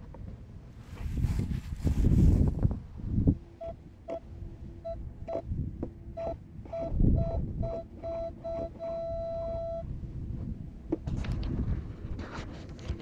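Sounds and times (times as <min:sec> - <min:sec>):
rustling: 0:00.8 - 0:02.7
metal detector beeping: 0:03.6 - 0:05.5, 0:06.1 - 0:09.9.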